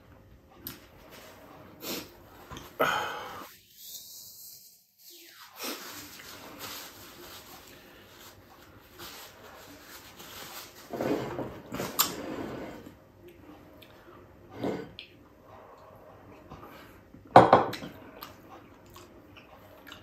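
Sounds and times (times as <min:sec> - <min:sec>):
man sniffling: 0:01.8 - 0:04.6
paper napkin rustling: 0:05.6 - 0:12.3.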